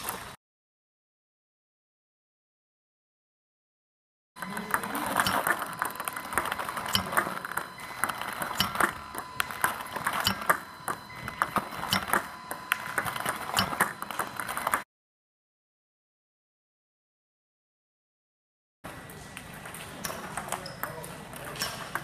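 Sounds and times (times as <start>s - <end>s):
ball machine feeding serves: 4.4s - 14.8s, 18.9s - 22.0s
faint steady whine: 4.4s - 14.8s
table tennis balls clicking: 4.4s - 14.8s, 18.9s - 22.0s.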